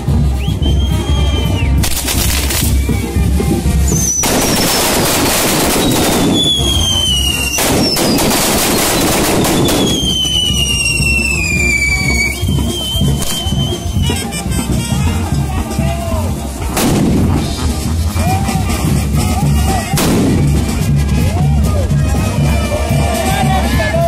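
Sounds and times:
music: 0.0 - 24.0
whistling fireworks: 0.4 - 3.2, 3.9 - 14.2
fireworks crackling and popping: 1.6 - 15.0, 16.3 - 21.3.

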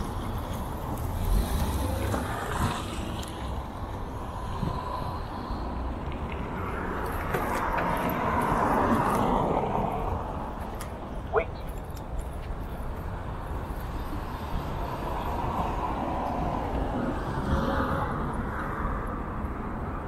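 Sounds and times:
low wind rumble on microphone: 0.0 - 10.7.

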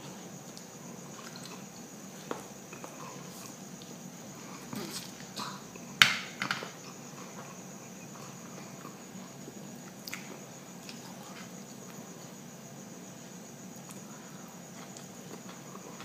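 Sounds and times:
high-pitched background hum: 0.0 - 16.0
chewing smacks: 9.8 - 11.1.

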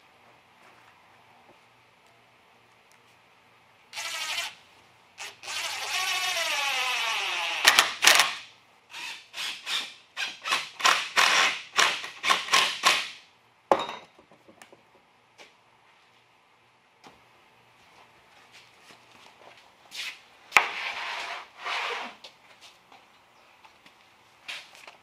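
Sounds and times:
cordless drill driving screws: 4.0 - 4.6, 5.2 - 13.1.

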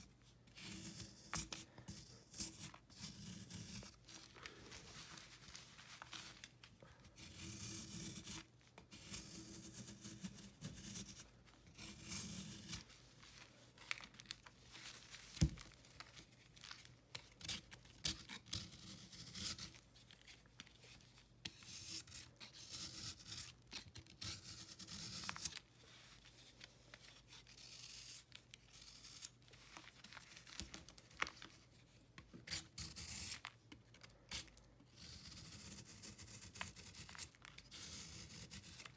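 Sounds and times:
knife blade scraping chalky block: 7.2 - 12.9, 17.4 - 19.8, 21.4 - 25.6, 32.5 - 33.4, 34.3 - 38.9.

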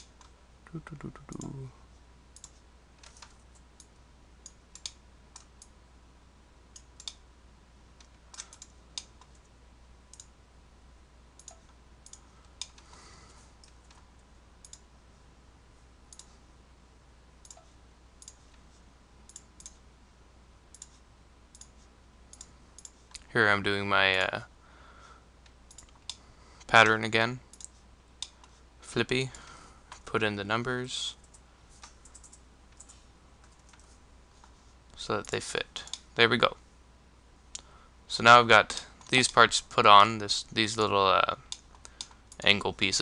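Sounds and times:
faint low hum: 0.0 - 43.0
computer mouse and keyboard clicks: 2.4 - 5.7, 8.0 - 9.5, 11.4 - 12.9, 16.1 - 16.4, 17.4 - 18.6, 20.7 - 23.3, 25.7 - 26.2, 27.5 - 28.6, 31.2 - 34.6.

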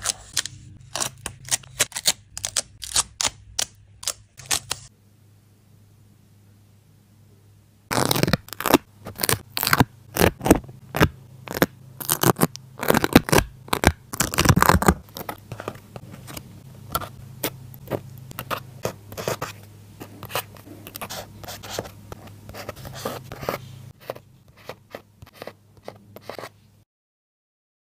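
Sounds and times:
paper scraping and tearing: 7.9 - 17.1.

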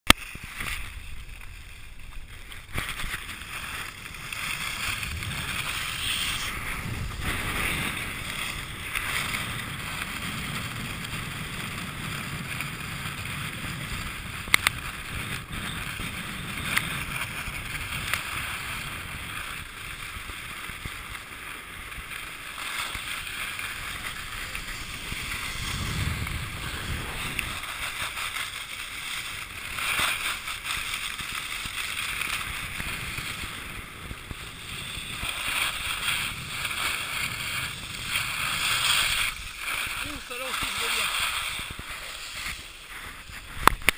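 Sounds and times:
skis scraping on snow: 0.1 - 43.9
low rumble: 23.5 - 28.0.

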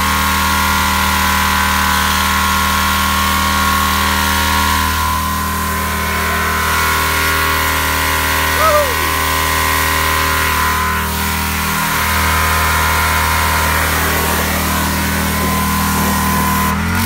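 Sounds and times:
high-pressure water jet hissing: 0.0 - 17.0
small engine running: 0.0 - 17.0.

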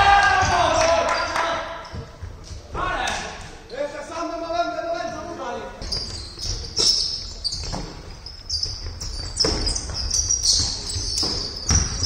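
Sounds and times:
shoes squeaking on wooden floor: 1.1 - 4.1, 5.0 - 12.0
basketball bouncing: 7.6 - 12.0.

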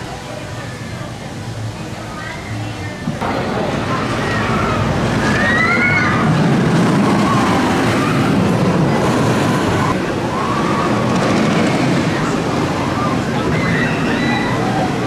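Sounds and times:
roller coaster train rumbling: 0.0 - 15.0
wind rushing over microphone: 3.2 - 15.0.

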